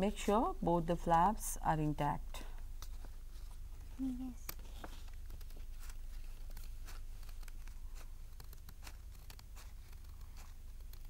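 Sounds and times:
paper rustling: 0:02.8 - 0:11.0
scissors snipping paper: 0:04.4 - 0:11.0.

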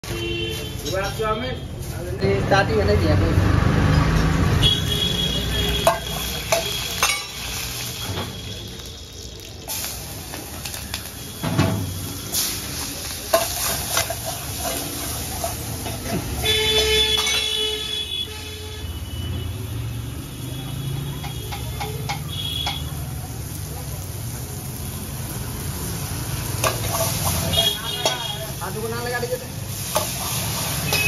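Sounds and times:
oil sizzling: 0:03.6 - 0:31.0
ladle clanking against wok: 0:05.7 - 0:08.3, 0:09.7 - 0:17.6, 0:21.2 - 0:23.0, 0:26.5 - 0:28.5, 0:29.7 - 0:31.0.

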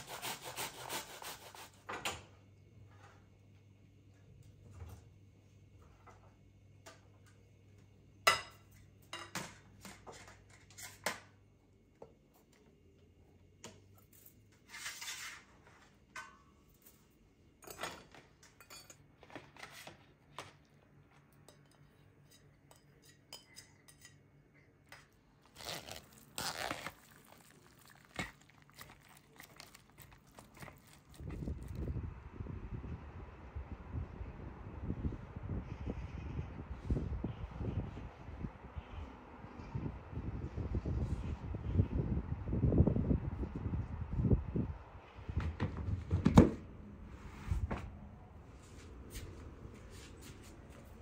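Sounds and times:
dishes and utensils clinking: 0:17.6 - 0:19.8, 0:21.3 - 0:25.2.

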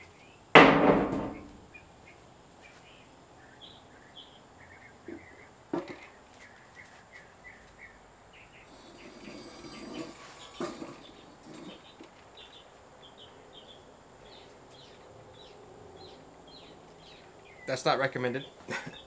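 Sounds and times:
faint bird chirps: 0:01.3 - 0:19.0.

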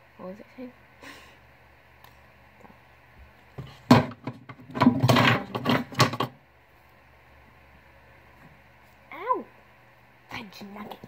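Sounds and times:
knocks and rustles of handling: 0:02.6 - 0:06.4.

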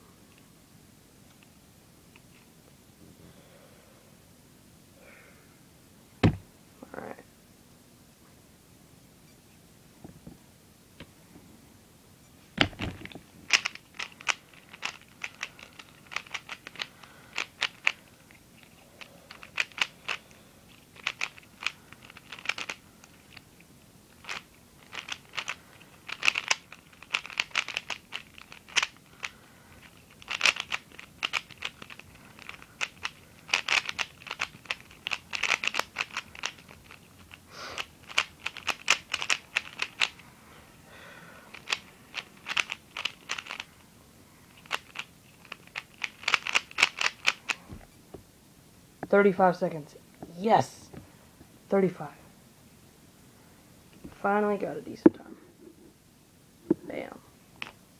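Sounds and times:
puzzle cube clicking turns: 0:12.6 - 0:40.2, 0:41.5 - 0:43.7, 0:44.5 - 0:47.6.

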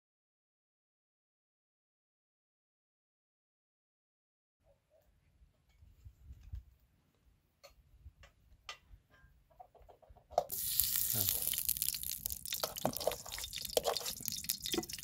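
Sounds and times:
metal pots clicking and knocking: 0:07.6 - 0:15.0.

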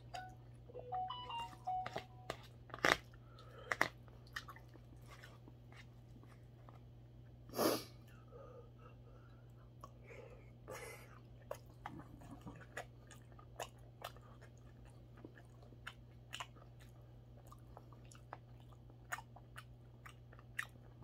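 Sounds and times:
chewing: 0:01.4 - 0:06.9, 0:11.0 - 0:21.0.

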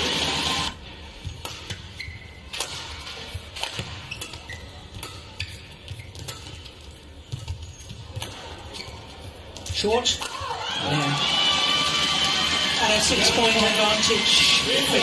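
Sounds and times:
shoes squeaking on court: 0:01.2 - 0:10.2
racket hitting shuttlecock: 0:01.3 - 0:09.0, 0:09.6 - 0:10.6.

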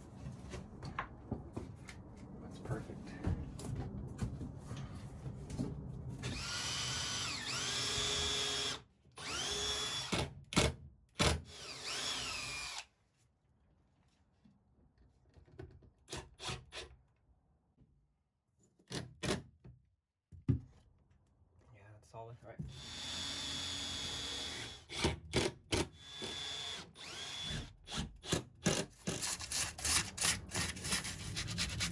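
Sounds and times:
cordless drill motor whining: 0:06.3 - 0:10.1, 0:11.5 - 0:12.9, 0:22.7 - 0:24.8, 0:26.0 - 0:27.7.

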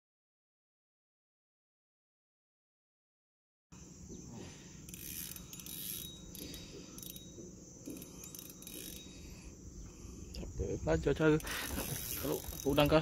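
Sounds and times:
fishing reel ticking: 0:04.7 - 0:13.0.

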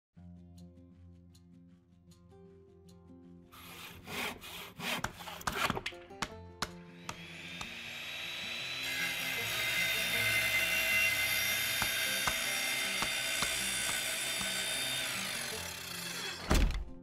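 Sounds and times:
power tool whining: 0:07.0 - 0:16.9.

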